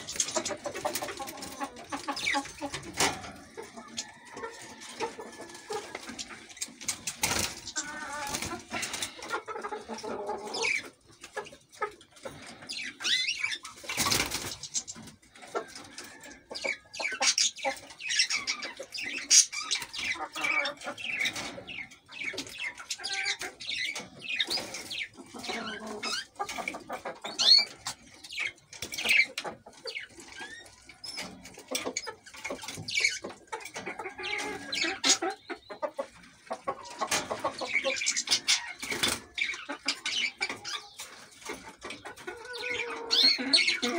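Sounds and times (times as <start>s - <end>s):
wings rustling in cage: 0.0s - 9.4s, 13.4s - 16.2s
canaries chirping and singing: 0.0s - 43.9s.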